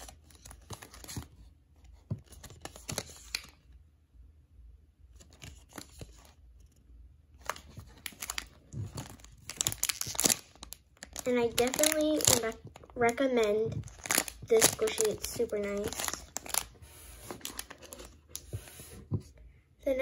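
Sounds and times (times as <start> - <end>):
plastic bag crinkling: 7.4 - 18.4.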